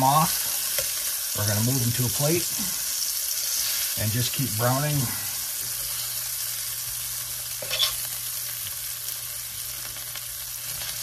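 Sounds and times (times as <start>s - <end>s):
meat sizzling in hot oil: 0.0s - 11.0s
metal tongs clinking on pan: 7.6s - 8.1s.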